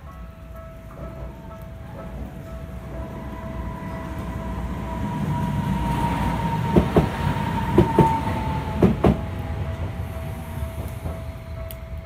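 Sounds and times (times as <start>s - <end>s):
train low rumble: 0.0s - 12.0s
two-tone crossing warning bell: 0.0s - 12.0s
train wheels clacking on rail joint: 6.3s - 9.3s, 10.6s - 12.0s.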